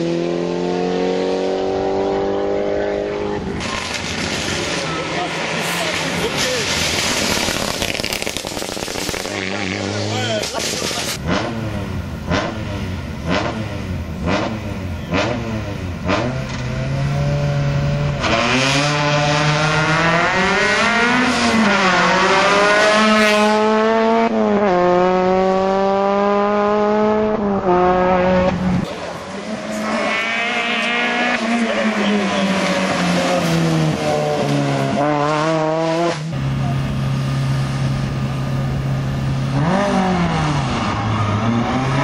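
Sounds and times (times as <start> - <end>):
car accelerating through gears: 0.0 - 3.8, 11.2 - 37.5
rally car engines revving: 0.0 - 42.0.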